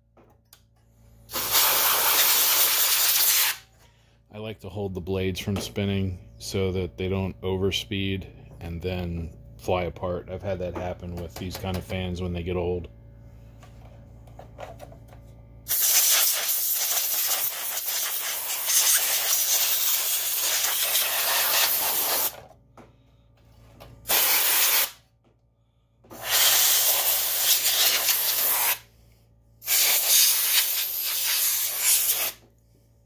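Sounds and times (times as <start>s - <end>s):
compressed air blow gun hissing: 1.3s - 3.6s, 15.7s - 22.3s, 24.1s - 25.0s, 26.2s - 28.8s, 29.6s - 32.4s.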